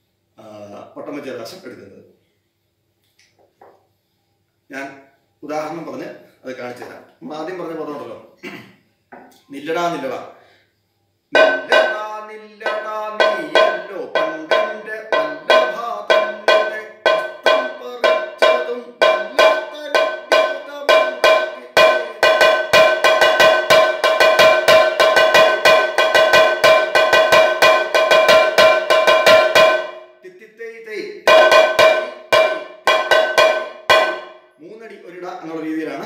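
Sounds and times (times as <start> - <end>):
barrel drum beaten with sticks: 11.3 - 30.1, 31.3 - 34.4.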